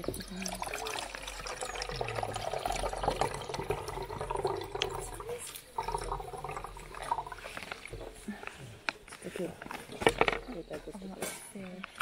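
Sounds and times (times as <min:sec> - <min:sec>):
water pouring into pot: 0:00.0 - 0:08.2.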